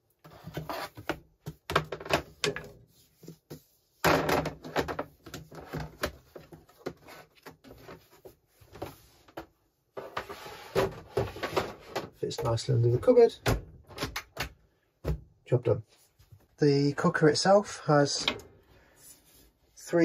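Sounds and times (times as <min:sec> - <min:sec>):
plastic boards knocking and clattering: 0:01.0 - 0:02.8, 0:04.0 - 0:08.0.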